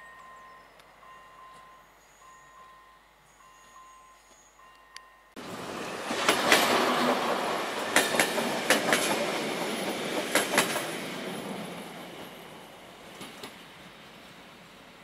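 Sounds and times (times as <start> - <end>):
level-crossing warning signal: 0.0 - 7.1
train wheels clattering over rail joints: 6.1 - 12.3.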